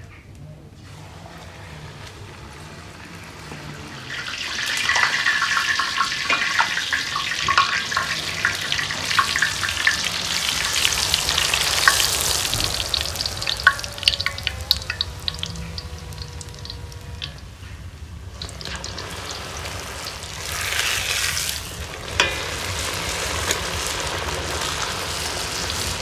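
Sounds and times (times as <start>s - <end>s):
dough frying in hot oil: 0.6s - 26.0s.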